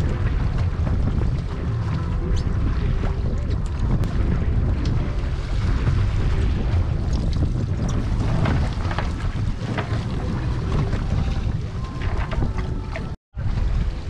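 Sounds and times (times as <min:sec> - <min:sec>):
water rumbling against hull: 0:00.0 - 0:14.0
wind buffeting microphone: 0:00.0 - 0:14.0.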